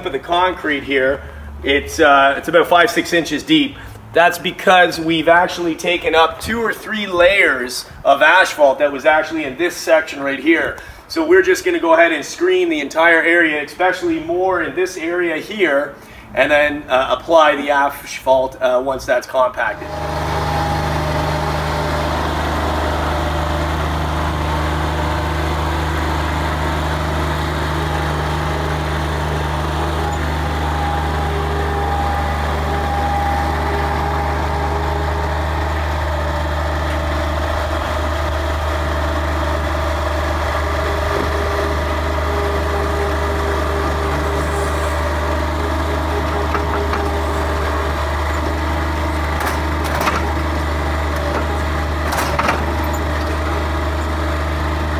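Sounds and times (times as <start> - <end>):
diesel engine droning: 0.0 - 12.0, 19.5 - 54.9.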